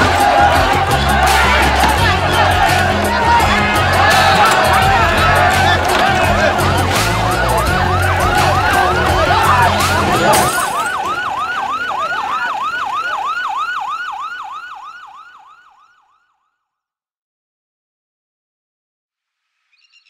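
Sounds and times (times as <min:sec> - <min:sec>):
loud music: 0:00.0 - 0:13.2
crowd noise: 0:00.0 - 0:15.8
police siren fast yelp: 0:00.0 - 0:16.4.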